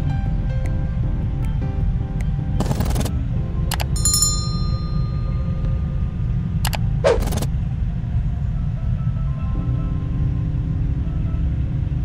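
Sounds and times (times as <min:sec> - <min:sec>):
steady low rumble: 0:00.0 - 0:12.0
bell ding: 0:04.0 - 0:05.8
clicks: 0:06.6 - 0:07.5
quick whoosh: 0:07.0 - 0:07.5.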